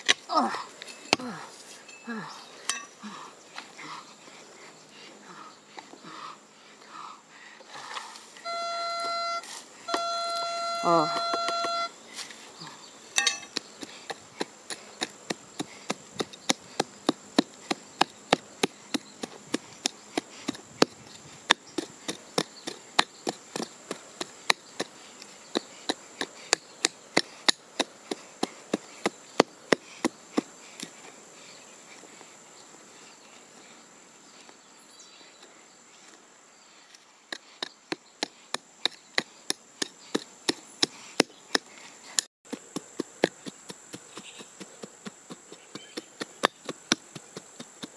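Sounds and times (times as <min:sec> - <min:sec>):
high insect buzz: 0:07.0 - 0:34.8, 0:35.4 - 0:47.9
hand pick chopping into soil: 0:10.9 - 0:12.4, 0:13.2 - 0:31.0, 0:37.3 - 0:47.9.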